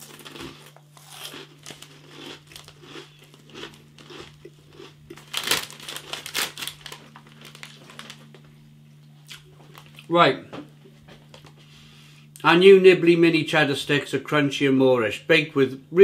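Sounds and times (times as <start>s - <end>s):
plastic snack bag crinkling: 0.0s - 8.5s, 9.7s - 10.1s.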